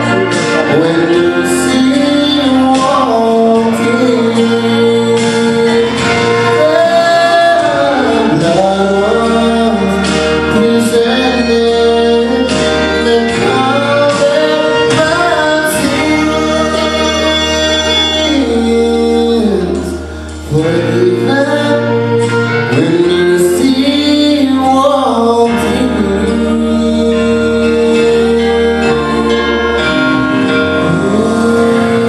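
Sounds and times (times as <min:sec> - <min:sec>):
instrumental accompaniment: 0:00.0 - 0:32.0
man singing gospel: 0:00.0 - 0:32.0.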